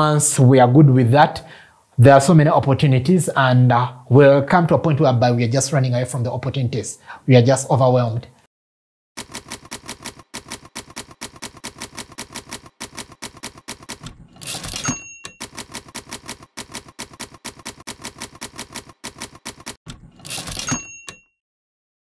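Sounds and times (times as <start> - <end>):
typewriter carriage return swish: 9.2 - 21.2
typewriter keys clacking: 9.2 - 21.2
typewriter bell ding: 14.4 - 16.3, 20.3 - 21.4.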